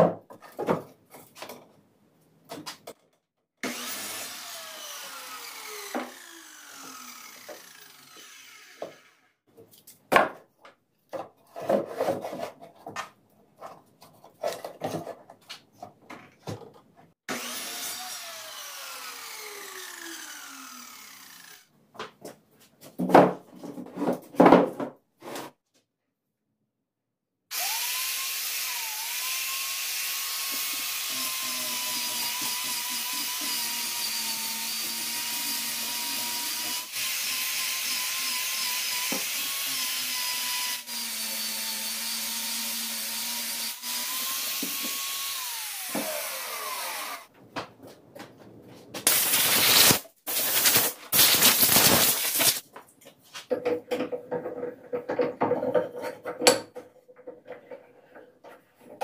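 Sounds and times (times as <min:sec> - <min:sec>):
angle grinder whining: 0:03.6 - 0:09.2, 0:17.3 - 0:21.7, 0:27.5 - 0:47.3, 0:49.1 - 0:52.6
rough scraping on wood: 0:11.4 - 0:13.0.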